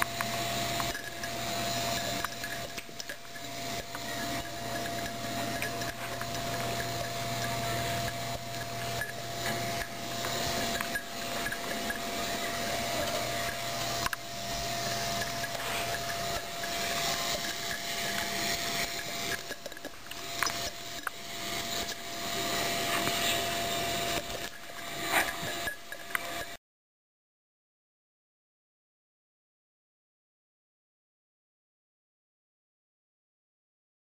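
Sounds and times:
thin steady whine: 0.0 - 26.6
rubbing against microphone: 0.8 - 26.4.

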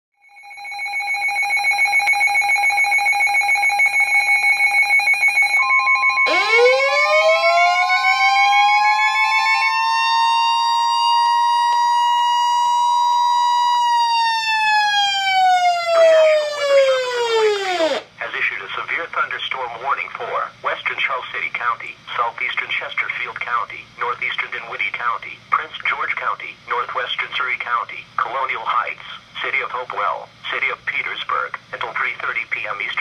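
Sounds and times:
pulsing two-pitch alarm beep: 0.2 - 9.6
steady warning alarm tone: 0.2 - 18.1
siren-type alarm sweeping: 0.3 - 18.1.

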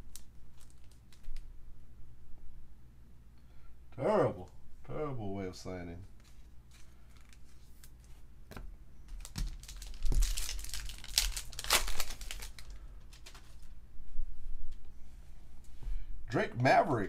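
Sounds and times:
foil wrapper tearing and crinkling: 0.0 - 1.5, 6.2 - 8.0, 9.2 - 13.7.

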